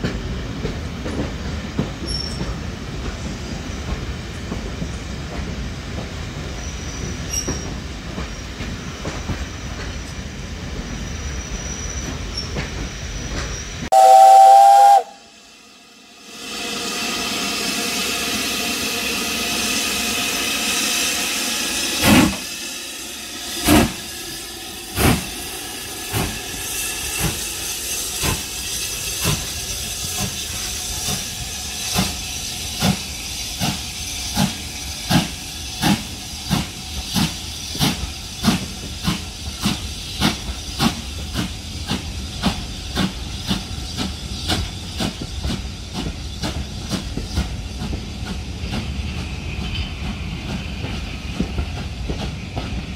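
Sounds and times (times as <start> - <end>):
steam hissing: 0.0 - 52.9
steam locomotive exhaust chuffs: 0.0 - 52.9.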